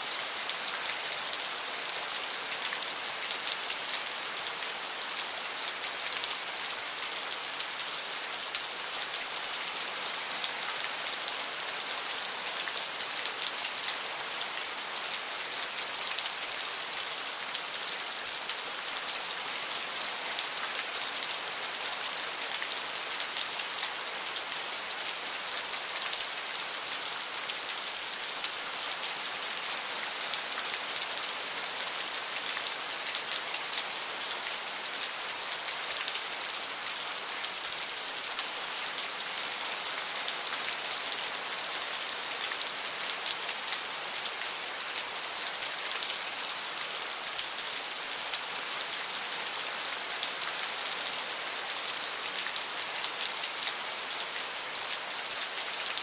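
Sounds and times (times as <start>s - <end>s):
steady rain: 0.0s - 56.0s.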